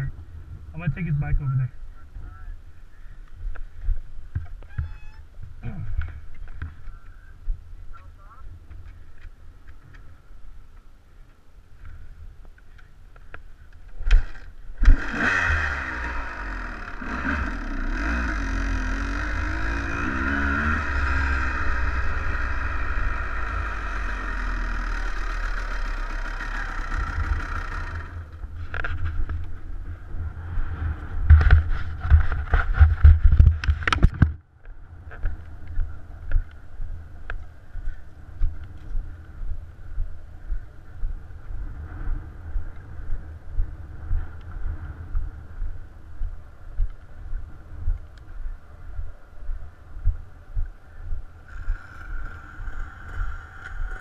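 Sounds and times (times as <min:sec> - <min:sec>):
dirt bike engine revving: 0:14.1 - 0:28.4, 0:51.4 - 0:54.0.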